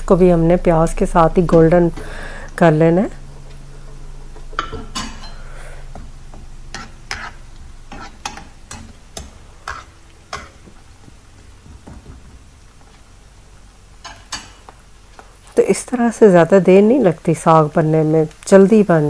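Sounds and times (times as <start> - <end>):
onions sizzling in oil: 4.2 - 19.0
spatula knocking and scraping pan: 6.0 - 12.5.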